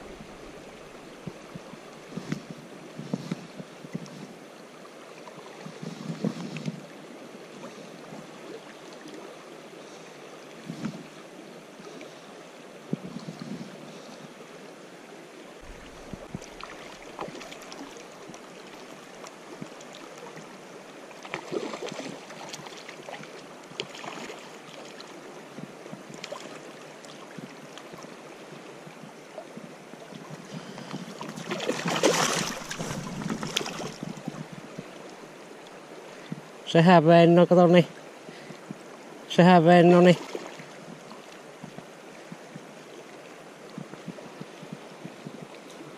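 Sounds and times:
river current flowing: 0.0 - 45.9
fish splashing at the surface: 15.6 - 19.0, 21.2 - 23.2, 31.2 - 34.1.

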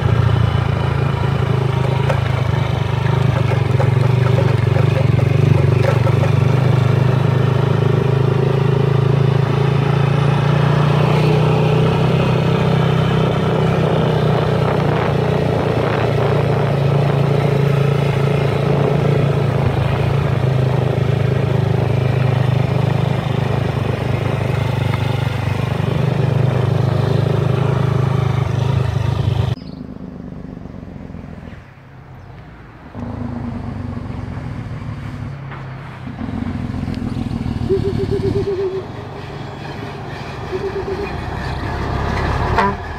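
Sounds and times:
motorcycle engine running: 0.0 - 31.4, 36.2 - 42.9
road noise: 0.0 - 42.9
wind noise: 13.5 - 21.0.

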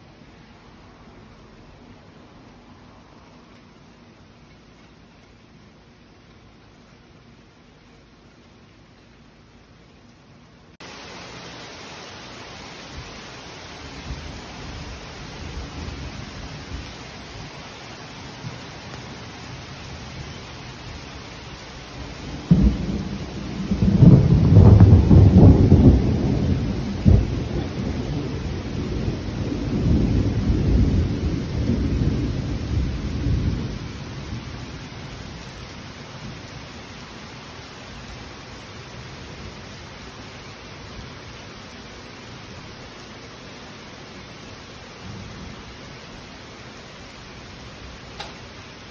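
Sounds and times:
rain hiss: 0.0 - 48.9
thunder rolling: 22.2 - 34.4.

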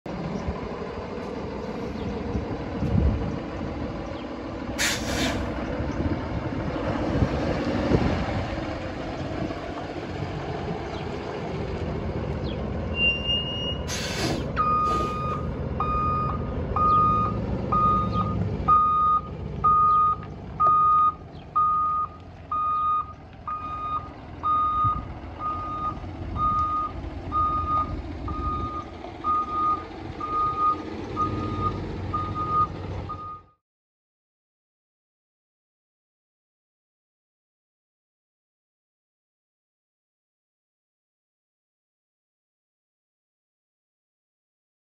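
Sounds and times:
diesel engine running: 0.1 - 33.6
air hiss bursts: 4.8 - 5.5, 13.9 - 15.2
truck backup alarm beeping: 12.9 - 33.6.

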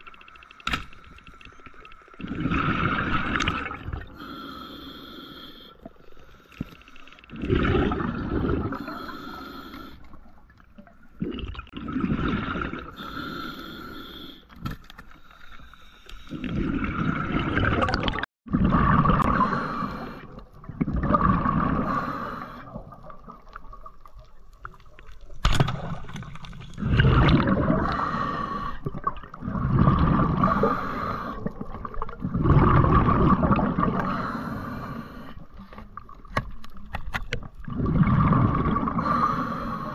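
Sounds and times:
underwater rushing water: 0.0 - 4.4, 7.2 - 9.3, 16.3 - 39.9
faint steady hum: 0.0 - 17.1.

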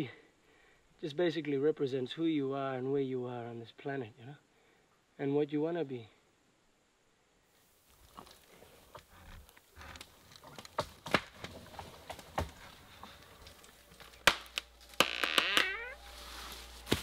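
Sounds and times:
wooden knocks and cracks: 9.8 - 15.7
twigs breaking: 9.8 - 17.0.

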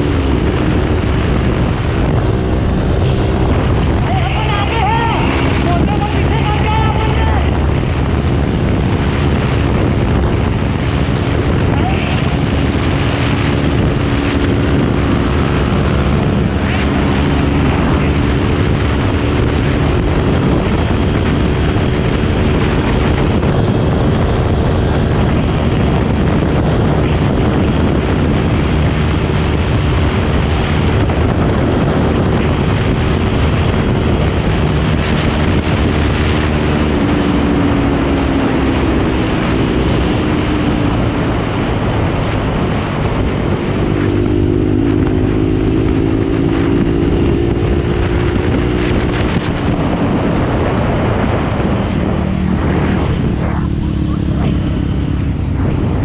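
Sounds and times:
motorcycle engine running: 0.0 - 56.0
wind noise on microphone: 0.0 - 56.0.

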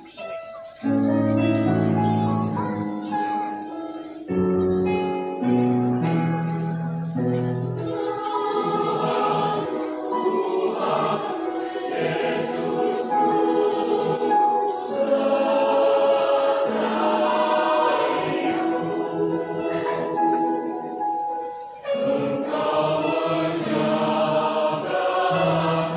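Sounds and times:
mixed choir singing: 6.0 - 25.9.

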